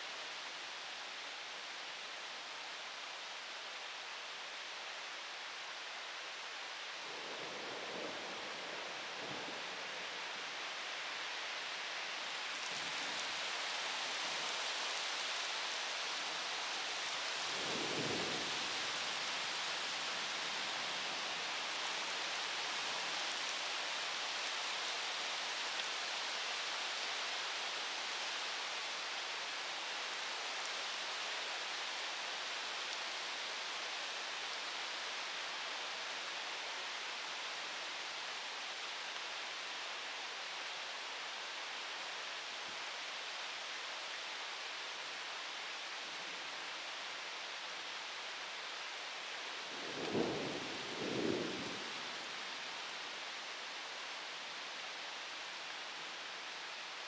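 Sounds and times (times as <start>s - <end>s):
heavy rain: 0.0s - 57.0s
low rumble of thunder: 49.8s - 52.1s.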